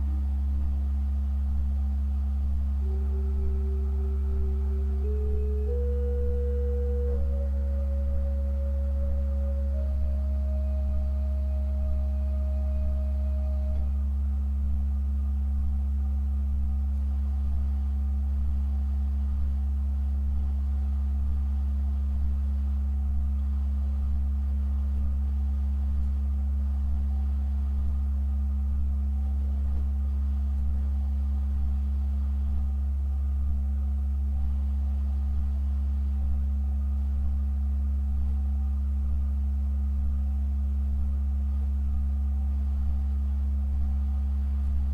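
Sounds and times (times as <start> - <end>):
pipe organ drone: 2.7 - 14.2.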